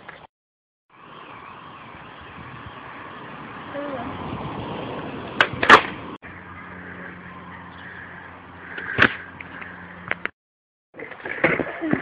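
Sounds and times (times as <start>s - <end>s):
skateboard rolling on asphalt: 1.0s - 7.3s.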